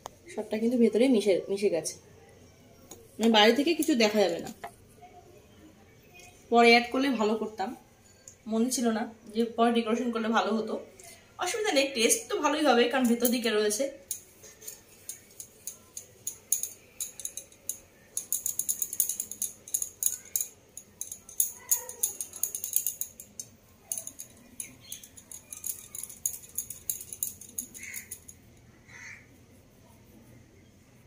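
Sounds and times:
bangles clinking and jingling: 0:03.0 - 0:04.7, 0:11.5 - 0:28.6.

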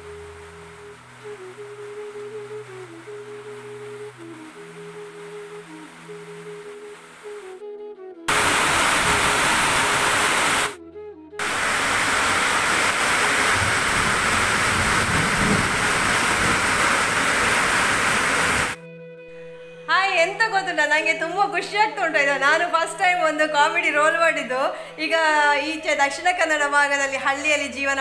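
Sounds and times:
heavy rain pouring: 0:00.0 - 0:07.6, 0:08.3 - 0:10.8, 0:11.4 - 0:18.8
soft background music: 0:00.0 - 0:08.3, 0:18.8 - 0:28.0.

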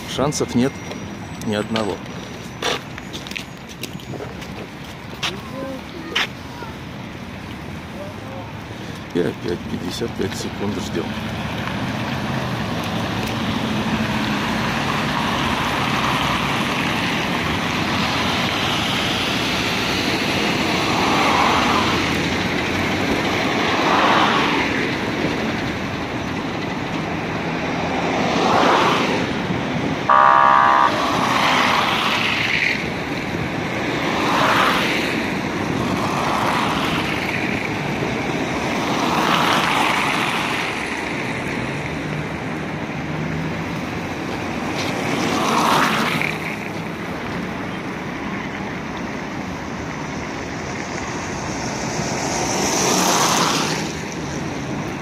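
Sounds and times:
cars passing close by: 0:00.0 - 0:55.0
road traffic noise: 0:00.0 - 0:55.0
car horn toot: 0:30.1 - 0:31.3.

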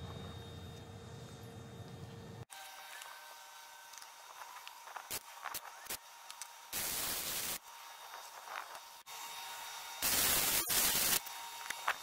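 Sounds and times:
welder arc crackling: 0:03.9 - 0:08.9, 0:10.0 - 0:11.2.

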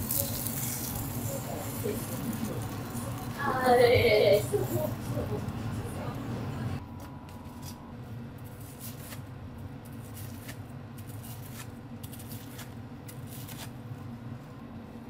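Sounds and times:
steady low hum: 0:00.0 - 0:15.0
knife crunching through fried breading: 0:08.4 - 0:13.8.

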